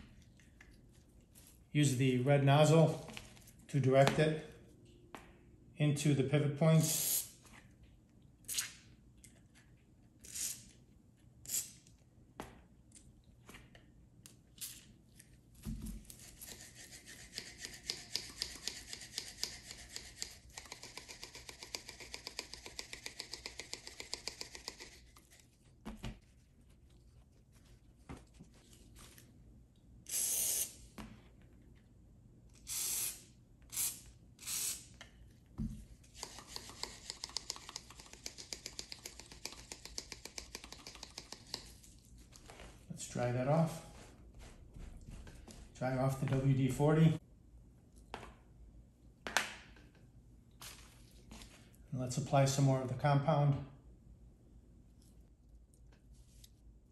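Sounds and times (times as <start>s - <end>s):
aerosol spray hissing: 30.1s - 30.8s.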